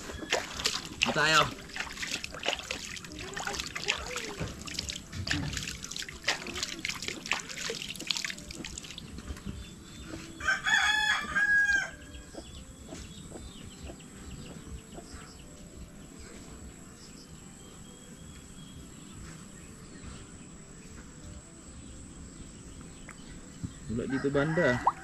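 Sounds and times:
small splashes and rustles: 0.0 - 9.7
rooster crowing: 10.4 - 12.0, 24.0 - 25.0.

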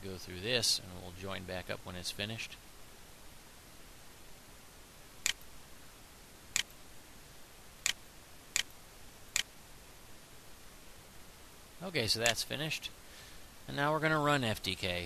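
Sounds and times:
faint steady hiss: 0.0 - 15.0
computer mouse clicks: 5.2 - 5.5, 6.5 - 6.8, 8.6 - 9.5.

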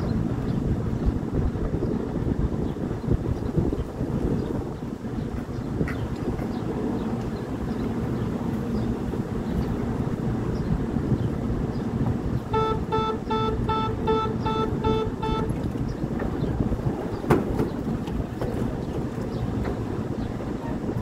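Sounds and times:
train low rumble: 0.0 - 21.0
quick door warning beeps: 12.6 - 15.6
door shutting with a thud: 17.2 - 17.8.

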